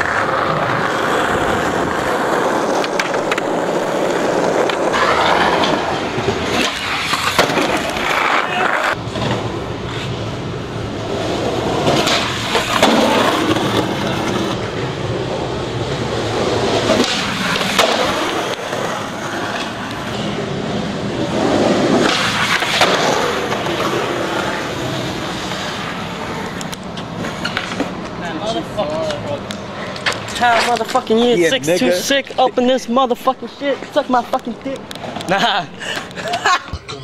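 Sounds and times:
skateboard clacks: 0.0 - 10.1, 10.8 - 20.6, 21.2 - 31.2
skateboard wheels rolling on concrete: 0.0 - 37.0.

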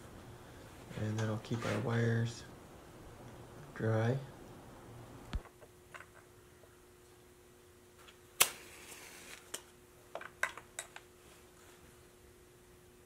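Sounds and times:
faint steady hum: 0.0 - 13.0
short hiss of flame: 8.4 - 9.6.

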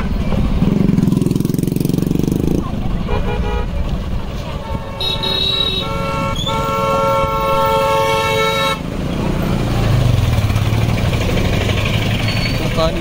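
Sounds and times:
vehicle horn: 3.0 - 3.8, 4.5 - 8.9
vehicle engine running: 8.9 - 13.0.

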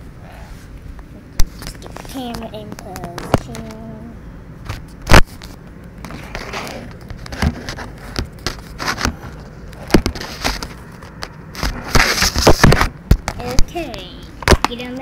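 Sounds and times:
camera being handled and bumped: 4.7 - 13.4.

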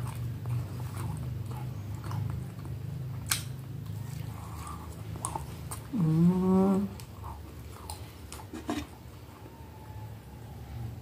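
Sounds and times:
person chewing food: 0.0 - 9.5.

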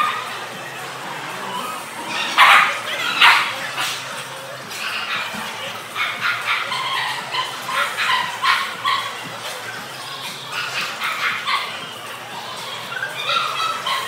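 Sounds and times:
dogs barking: 0.0 - 14.0.

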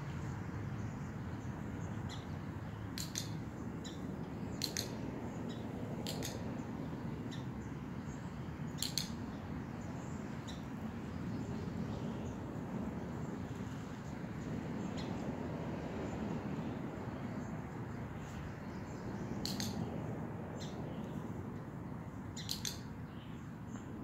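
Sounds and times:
outdoor background noise: 0.0 - 24.0
sharp high-pitched clicks: 2.9 - 3.5, 4.5 - 5.0, 6.0 - 6.4, 8.7 - 9.3, 19.4 - 19.9, 22.4 - 23.0.

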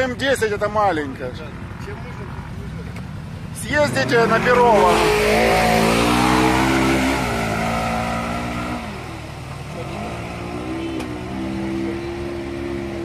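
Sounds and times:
off-road vehicle engine revving: 2.7 - 13.0.

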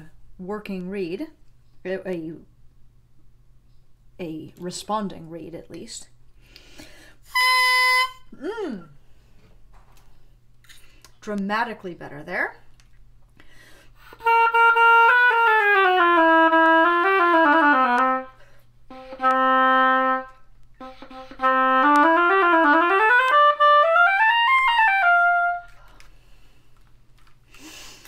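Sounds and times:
oboe playing notes: 7.3 - 8.3, 14.1 - 25.8.

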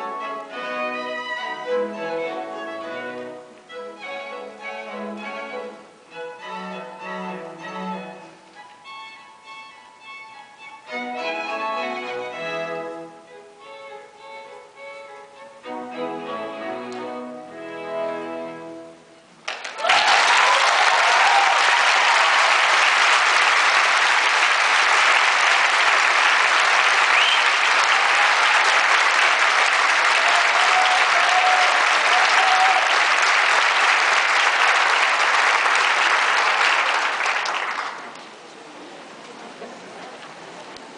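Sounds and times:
audience applauding: 19.4 - 38.5.

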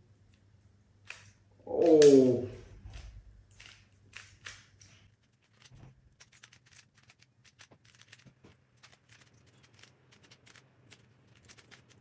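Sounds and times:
plastic puzzle cube clicking: 3.0 - 12.0.

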